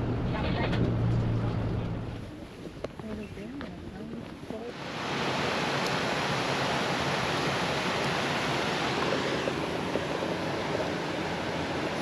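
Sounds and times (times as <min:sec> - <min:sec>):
waterfall rushing over rocks: 0:04.7 - 0:12.0.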